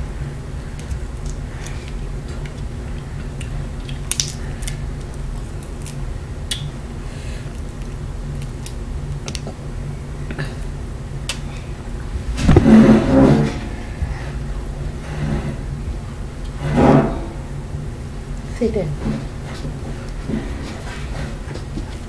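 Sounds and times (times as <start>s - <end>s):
steady low hum: 0.0s - 22.0s
shrimp shells cracking: 0.8s - 6.7s, 7.4s - 9.6s.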